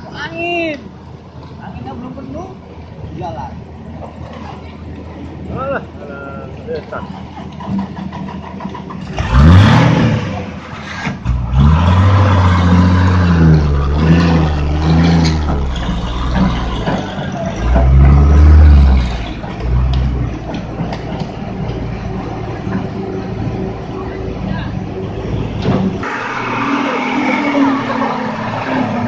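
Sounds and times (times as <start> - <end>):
truck diesel engine revving hard: 9.0 - 20.3.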